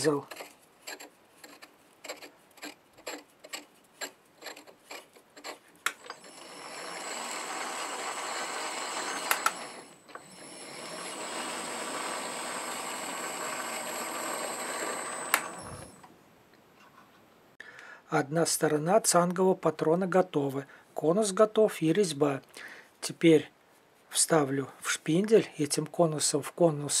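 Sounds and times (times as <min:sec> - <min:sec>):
lathe whirring and whining: 0:06.0 - 0:16.1.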